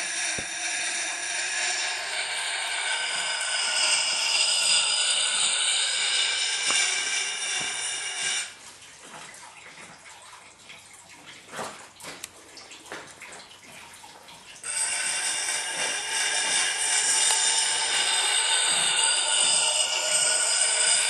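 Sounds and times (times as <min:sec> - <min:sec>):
steel blade on grindstone: 0:00.0 - 0:08.6, 0:14.6 - 0:21.0
faint scrapes: 0:14.6 - 0:21.0.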